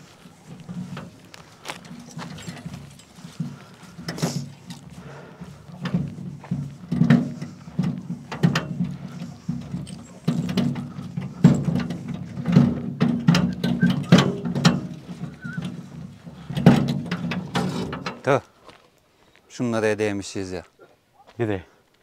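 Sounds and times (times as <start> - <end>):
footsteps on dry grass and dirt: 0.0 - 22.0.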